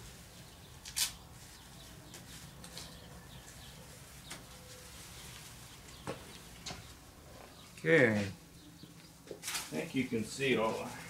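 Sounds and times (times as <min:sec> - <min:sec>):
tape ripping: 0:00.8 - 0:01.5, 0:09.3 - 0:09.8.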